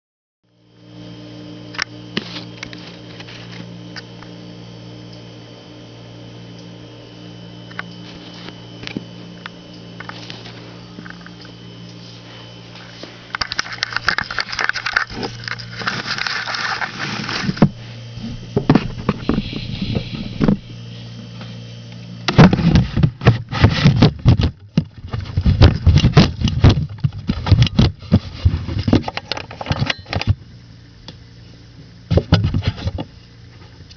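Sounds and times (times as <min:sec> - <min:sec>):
steady low hum: 0:00.5 - 0:33.9
rustling handling noise: 0:10.0 - 0:21.2
shredder crunching plastic: 0:13.0 - 0:20.7, 0:22.3 - 0:30.3.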